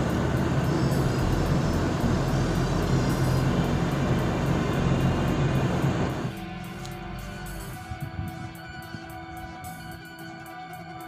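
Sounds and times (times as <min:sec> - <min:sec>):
rushing hiss: 0:00.0 - 0:06.4
ship machinery drone: 0:00.0 - 0:11.0.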